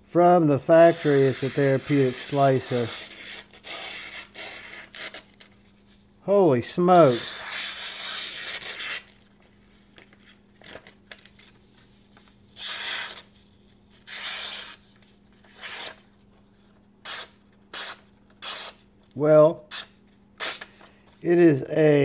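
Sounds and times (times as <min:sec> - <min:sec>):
knife slicing paper: 0:00.9 - 0:05.6, 0:07.0 - 0:09.2, 0:11.9 - 0:16.0, 0:17.0 - 0:18.8.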